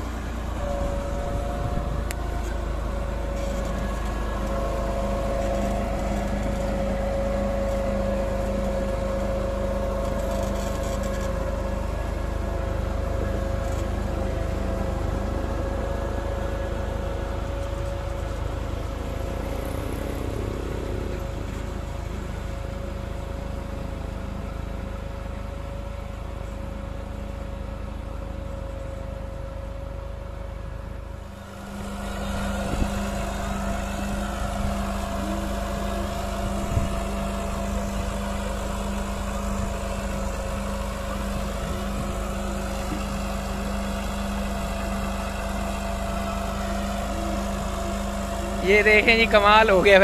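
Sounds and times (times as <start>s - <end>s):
tractor engine running: 0.0s - 50.0s.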